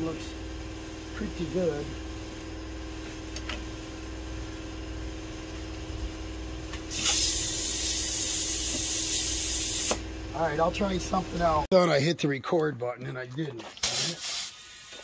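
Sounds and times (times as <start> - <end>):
steady machine hum: 0.0 - 12.0
compressed air hissing: 6.9 - 10.0, 13.8 - 15.0.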